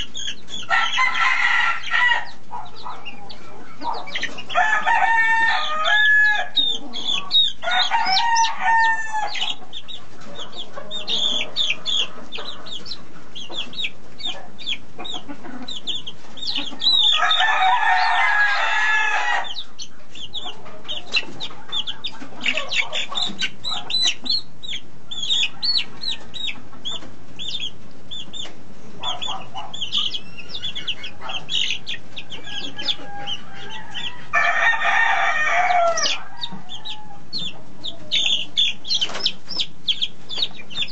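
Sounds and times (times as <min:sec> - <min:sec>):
chicks peeping: 0:00.0 - 0:40.9
rooster crowing: 0:00.7 - 0:09.6, 0:16.5 - 0:19.7, 0:29.0 - 0:38.2.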